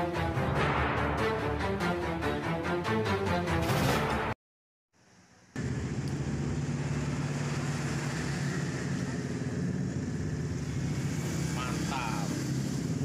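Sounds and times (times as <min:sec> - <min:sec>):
low motor drone: 0:05.2 - 0:13.0.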